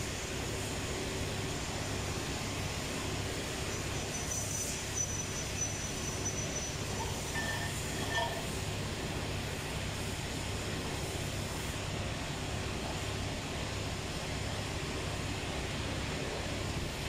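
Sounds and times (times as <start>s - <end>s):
machinery drone: 3.0s - 9.4s
metallic ring of steel liner: 4.1s - 8.7s.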